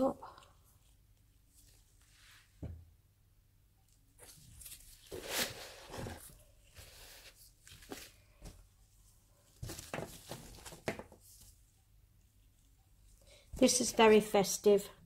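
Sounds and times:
scooping crumbly powder mix: 4.2 - 8.6.

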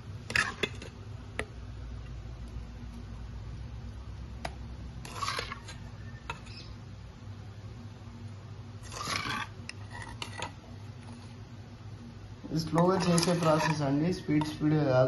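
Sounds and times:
spoon scraping a steel bowl: 0.3 - 0.9, 5.0 - 6.7, 8.8 - 11.4, 12.6 - 14.6.

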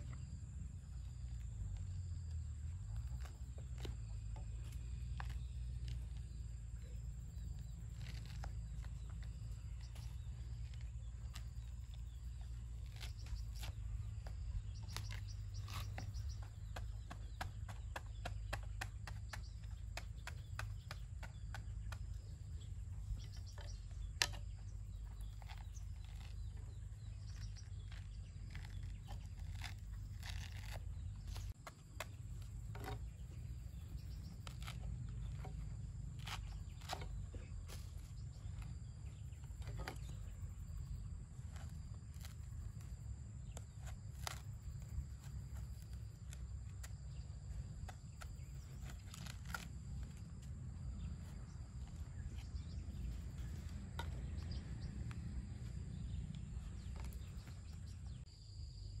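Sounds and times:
insect drone: 0.0 - 59.0
knife peeling fruit rind: 0.9 - 58.3.

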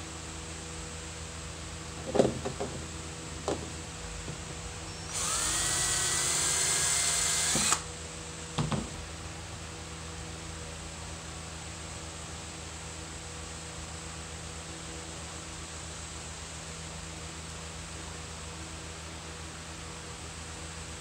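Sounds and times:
power drill whining: 4.9 - 7.9.

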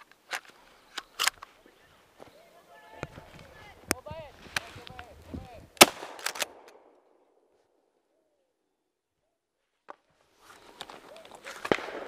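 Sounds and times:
sharp cracks: 5.7 - 7.1, 10.7 - 12.0
shotgun firing: 5.8 - 6.9, 11.6 - 12.0.

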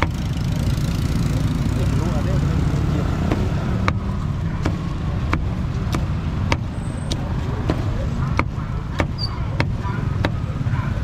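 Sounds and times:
low traffic rumble: 0.0 - 11.0
cleaver chopping meat on board: 3.1 - 10.4.

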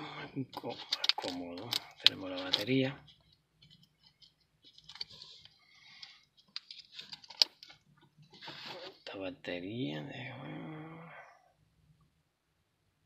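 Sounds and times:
hands handling key fob: 0.6 - 2.8, 3.6 - 7.8.

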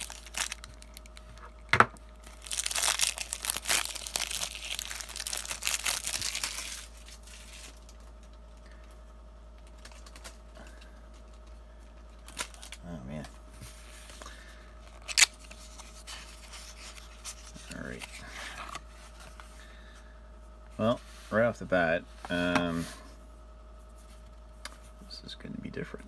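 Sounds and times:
shrink-wrap crinkling and tearing: 0.0 - 8.3, 12.2 - 13.3, 14.9 - 18.8.

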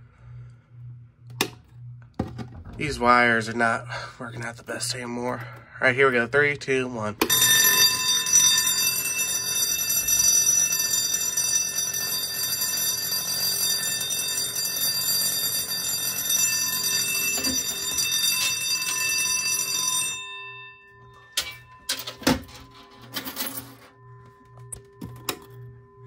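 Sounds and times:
fire alarm bell ringing: 7.2 - 26.0.

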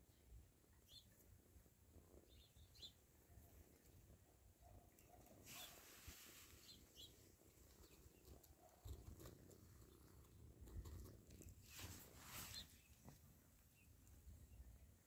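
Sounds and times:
small ticks: 7.0 - 11.7.

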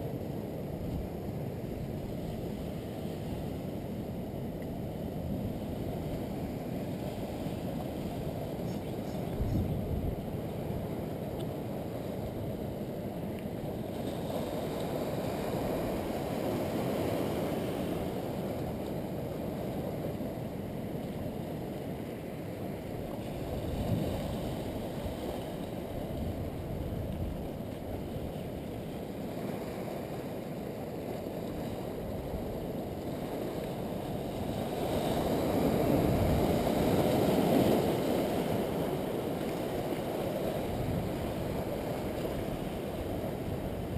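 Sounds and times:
ocean surf washing over rocks: 0.0 - 43.9.

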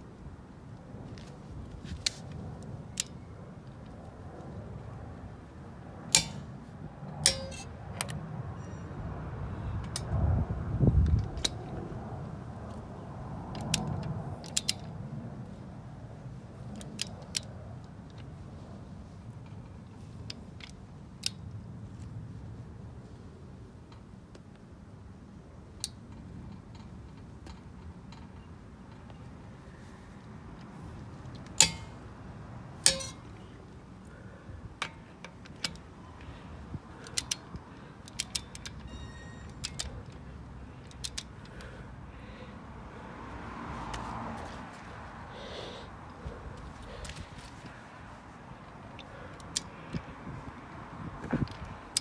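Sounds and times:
torque wrench clicking: 31.4 - 32.0, 32.8 - 33.3, 37.0 - 40.2, 40.8 - 41.8, 49.0 - 50.1.

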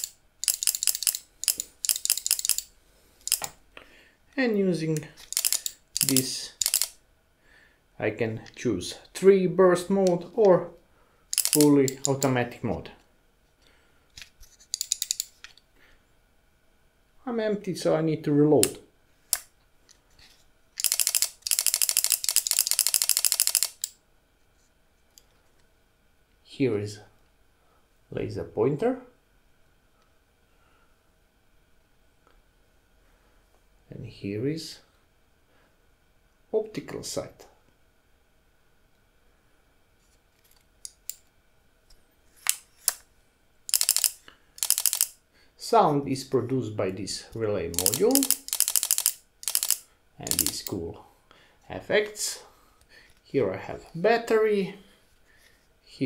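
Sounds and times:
relay clicking rapidly: 0.0 - 3.5, 5.3 - 7.0, 11.3 - 12.3, 20.8 - 23.9, 43.7 - 45.1, 47.7 - 50.7.

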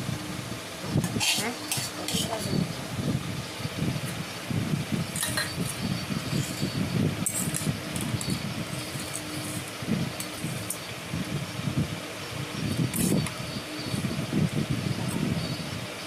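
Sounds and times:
steady low rumble: 0.0 - 16.0
steel spoon clinking on bowls: 5.2 - 5.7.

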